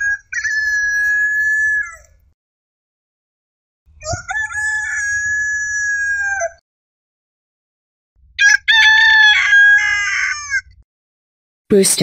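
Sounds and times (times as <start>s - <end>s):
rooster crowing: 4.0s - 6.6s, 8.4s - 10.7s.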